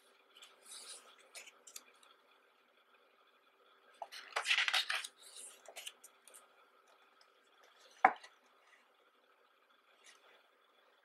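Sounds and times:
paper page rustling: 0.4s - 2.0s, 4.0s - 6.4s.

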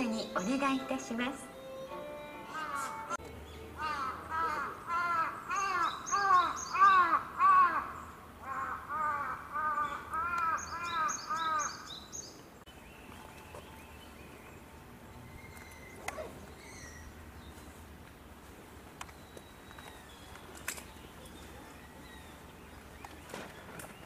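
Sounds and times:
crow cawing: 2.5s - 3.2s, 3.8s - 11.9s.

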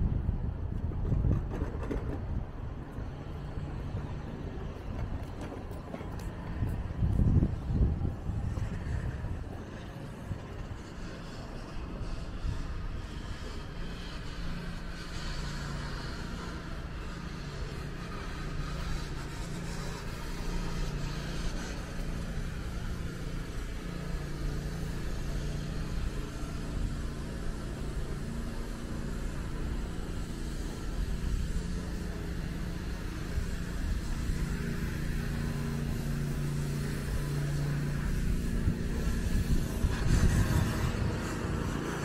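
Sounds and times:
low outdoor rumble: 0.0s - 42.0s.

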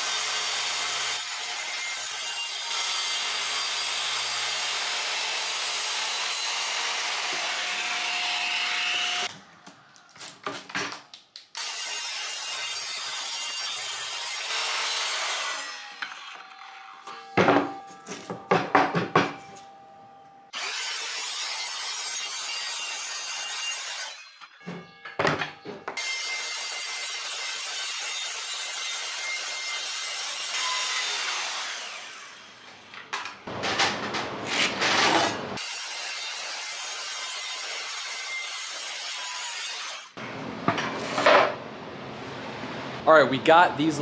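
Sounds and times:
circular saw cutting plywood: 0.0s - 9.3s, 11.6s - 17.2s
boards knocking and clattering: 17.4s - 19.4s.

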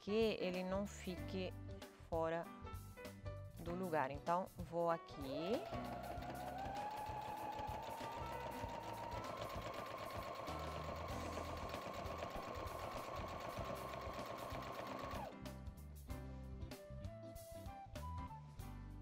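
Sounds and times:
sewing machine stitching: 5.2s - 15.3s.

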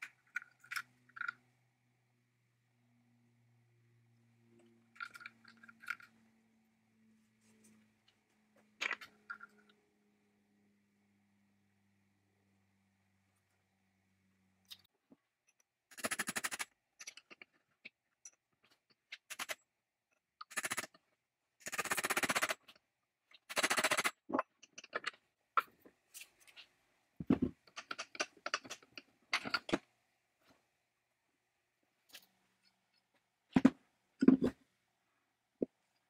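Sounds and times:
small clicks and scrapes: 0.0s - 1.5s, 4.6s - 6.3s, 7.4s - 9.8s, 14.6s - 19.7s, 20.3s - 30.7s.

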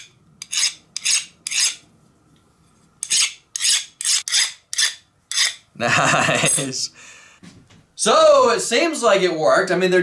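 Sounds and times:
file scraping steel gear: 0.0s - 1.8s, 2.7s - 5.6s.

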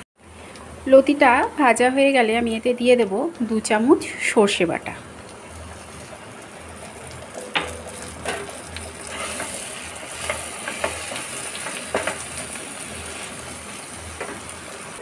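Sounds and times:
food sizzling in hot oil: 0.9s - 15.0s
spatula scraping and tapping pan: 7.5s - 9.6s, 10.2s - 12.2s.

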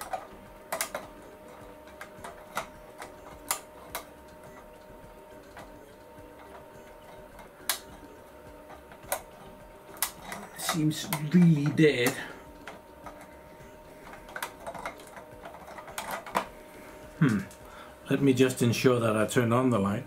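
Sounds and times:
fluorescent tube pins clicking: 0.0s - 13.3s, 14.0s - 16.5s
faint steady hum: 0.0s - 20.0s.

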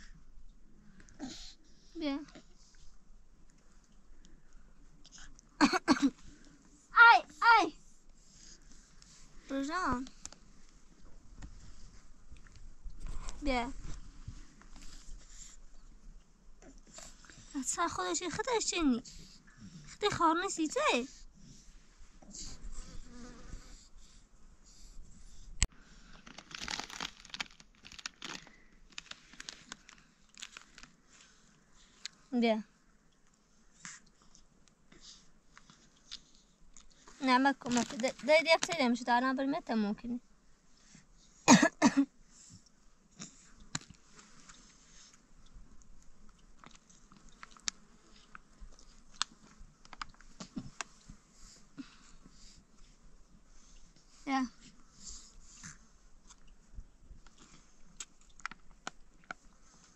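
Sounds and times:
foil snack packet crinkling: 26.0s - 31.0s, 37.6s - 38.7s.

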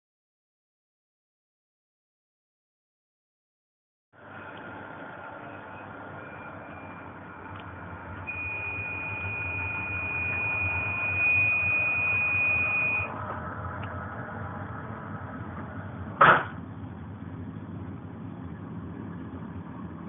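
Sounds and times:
high steady squeal: 4.3s - 15.6s
train rumbling on rails: 9.2s - 20.0s.

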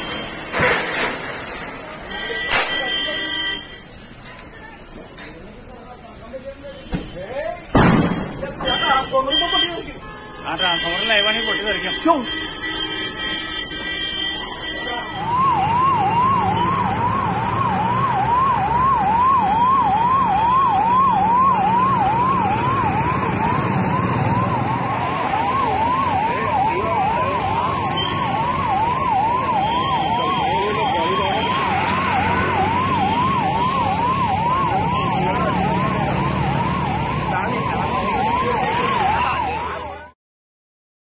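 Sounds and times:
fire engine siren yelping: 0.0s - 4.0s, 7.6s - 40.2s
second siren: 8.6s - 9.8s, 10.5s - 40.2s.

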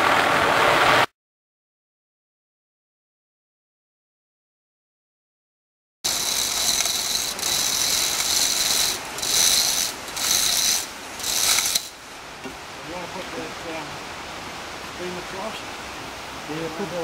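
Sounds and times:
chain hoist ratchet clattering: 6.1s - 12.0s.

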